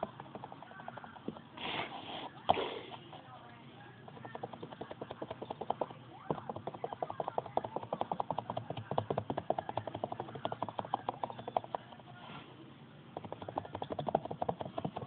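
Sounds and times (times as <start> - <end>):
sponge tapping on canvas: 4.0 - 12.0, 13.2 - 15.0.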